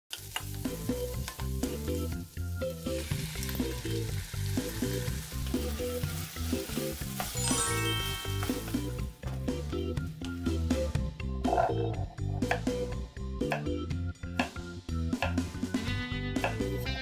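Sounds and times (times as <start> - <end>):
food sizzling in frying pan: 0.1 - 9.1
upbeat background music: 0.2 - 17.0
bright rising chime: 7.3 - 9.0.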